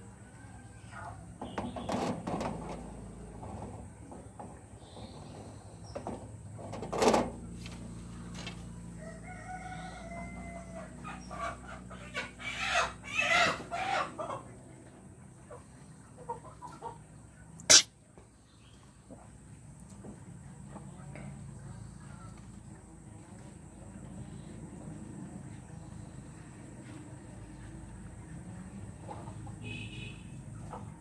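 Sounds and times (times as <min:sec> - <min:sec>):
rooster crowing: 0:08.8 - 0:11.3
chicken clucking: 0:09.0 - 0:18.2, 0:26.8 - 0:29.7, 0:30.5 - 0:31.0.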